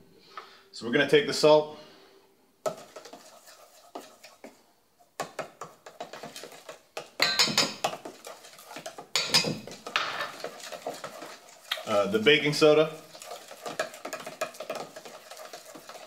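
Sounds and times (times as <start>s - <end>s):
spoons scraping metal bowl: 2.7s - 4.6s, 5.2s - 16.0s.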